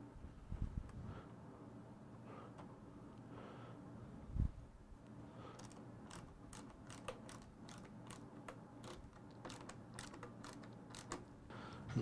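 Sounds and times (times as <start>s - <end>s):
screwdriver clicking on screw: 5.6s - 11.3s.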